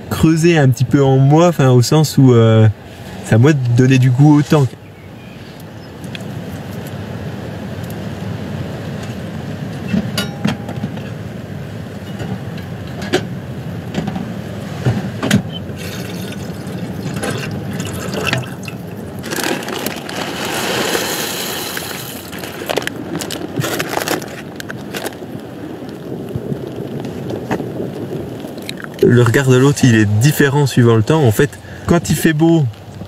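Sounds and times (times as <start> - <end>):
knocks and clatter of handling: 9.8 - 11.2
water pouring into metal pot: 15.8 - 22.3.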